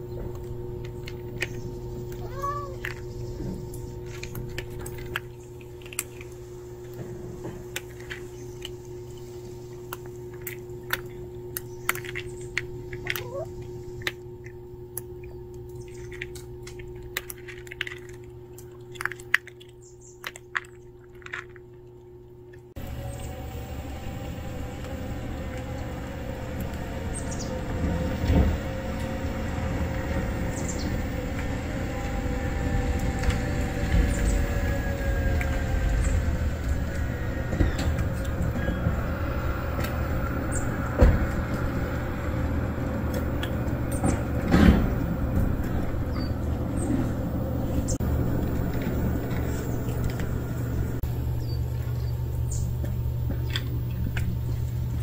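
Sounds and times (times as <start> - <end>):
steady background rumble: 0.0 - 55.0
cat crunching dry kibble: 0.3 - 22.8, 48.0 - 55.0
cat meow: 2.2 - 2.9.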